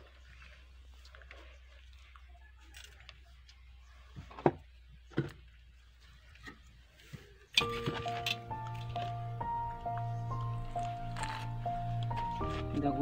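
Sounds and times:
background music with held notes: 0:07.6 - 0:13.0.

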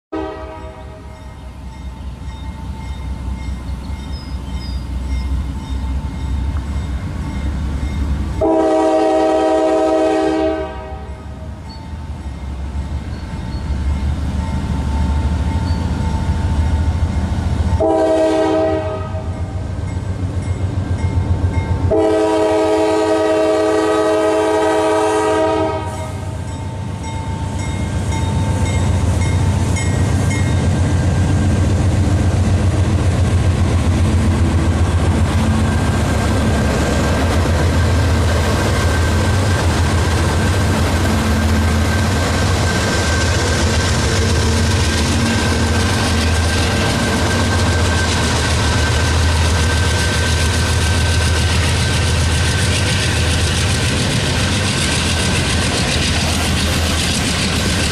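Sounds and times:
locomotive air horn blasts: 0:00.1 - 0:01.2, 0:08.4 - 0:11.5, 0:17.8 - 0:19.6, 0:21.9 - 0:26.4
diesel locomotive rumble: 0:00.2 - 0:57.9.

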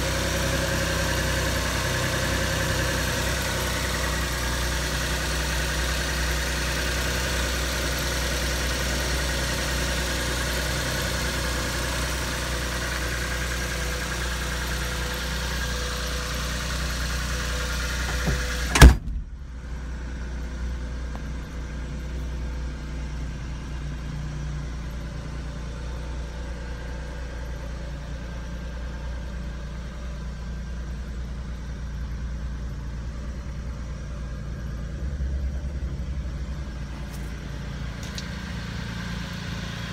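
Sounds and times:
truck engine idling: 0:00.0 - 0:39.9
loud slam: 0:18.1 - 0:19.6.

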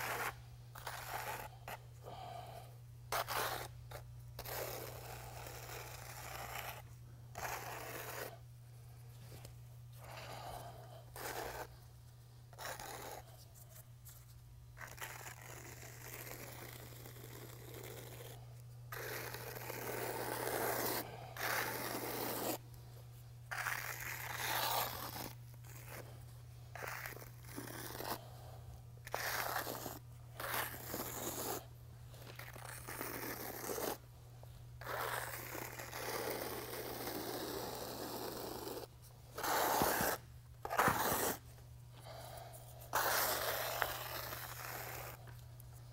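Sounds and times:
steel trowel scraping: 0:39.4 - 0:41.4, 0:42.9 - 0:45.2.

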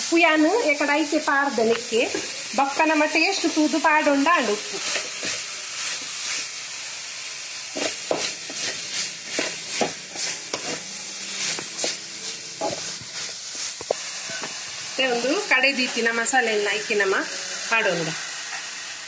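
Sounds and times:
chicken and onions sizzling: 0:00.0 - 0:19.0
spatula scraping metal pan: 0:07.8 - 0:13.0.

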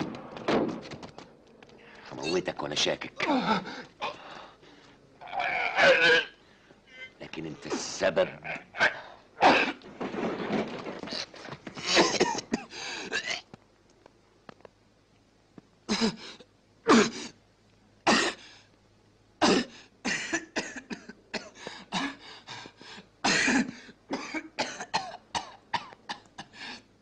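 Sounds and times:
man coughing: 0:05.8 - 0:06.4, 0:11.8 - 0:13.4, 0:19.4 - 0:22.2, 0:23.2 - 0:26.6.

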